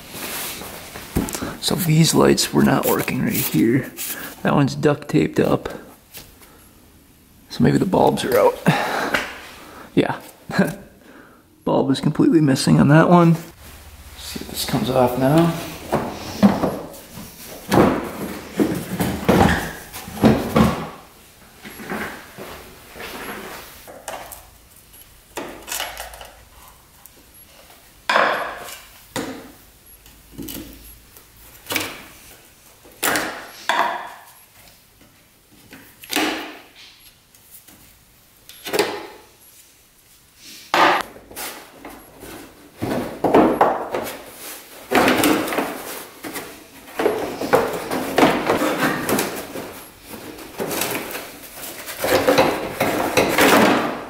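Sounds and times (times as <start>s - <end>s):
plastic panels knocking and rattling: 44.9s - 54.0s.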